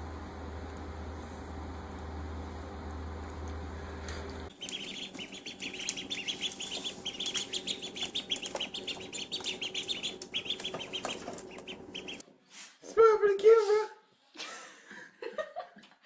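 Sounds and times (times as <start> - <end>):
steady low hum: 0.0 - 12.2
ducklings peeping: 4.4 - 12.2.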